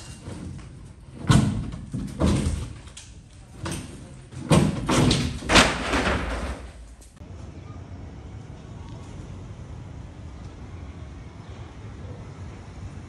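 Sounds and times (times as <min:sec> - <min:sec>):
construction thuds and knocks: 0:00.0 - 0:02.9, 0:03.6 - 0:07.0.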